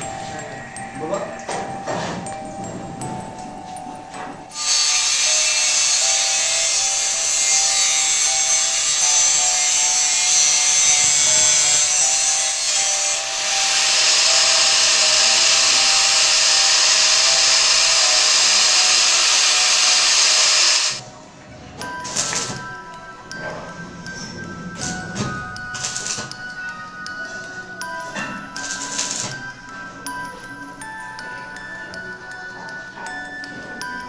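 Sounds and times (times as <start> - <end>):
angle grinder cutting metal: 4.5 - 21.0, 25.8 - 26.3, 28.6 - 29.4.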